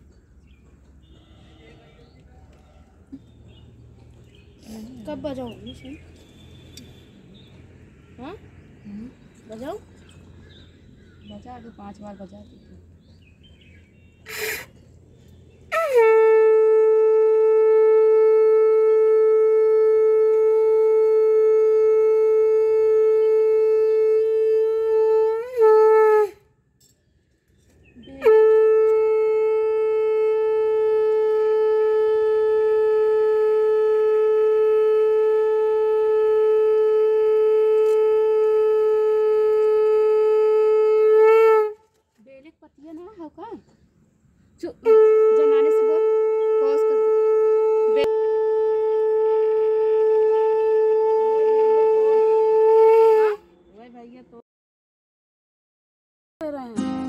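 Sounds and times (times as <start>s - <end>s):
conch shell blasts: 15.7s - 26.4s.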